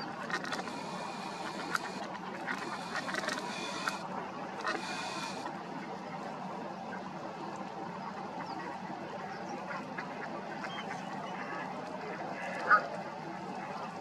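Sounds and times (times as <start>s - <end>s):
ducks quacking: 0.0s - 5.5s, 8.0s - 12.9s.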